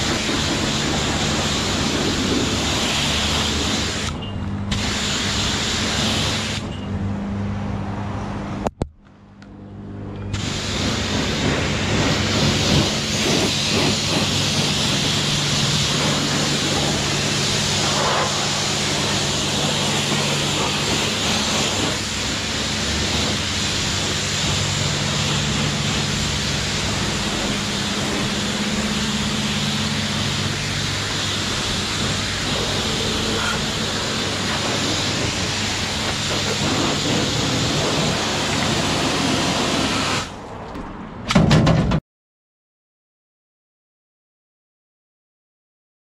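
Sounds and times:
pressure washer spraying water: 0.0 - 6.7, 10.3 - 40.4
low hum: 6.7 - 38.9.

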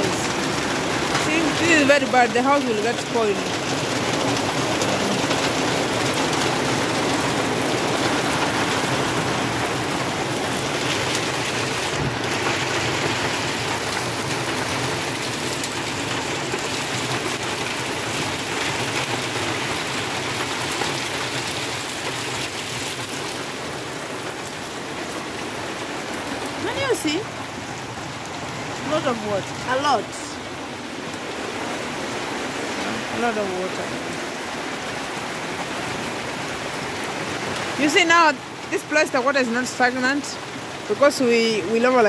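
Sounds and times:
heavy rain pouring: 0.0 - 42.0.

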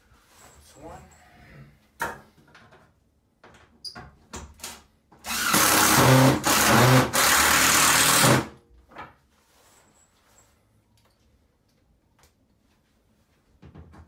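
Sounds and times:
cordless drill boring: 5.2 - 8.5.

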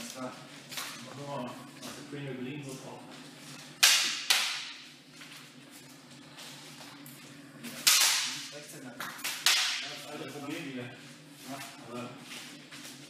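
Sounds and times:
sparring weapons cracking: 3.8 - 4.8, 7.8 - 8.5, 9.2 - 9.9.

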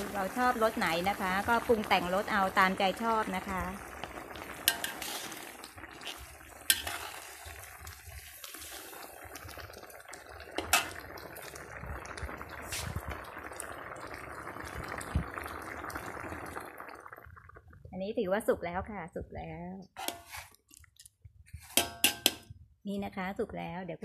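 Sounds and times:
curry simmering hiss: 0.0 - 16.8
ladle clinking against metal pan: 21.7 - 22.5.

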